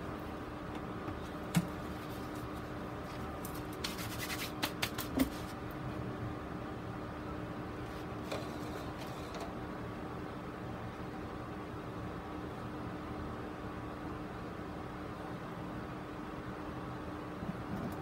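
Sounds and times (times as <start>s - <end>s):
background hum: 0.0s - 18.0s
light scratches: 1.9s - 5.6s.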